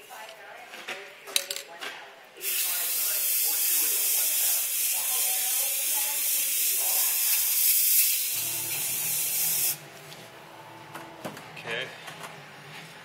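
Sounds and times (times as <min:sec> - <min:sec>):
aerosol spray can hissing: 0:02.4 - 0:09.8.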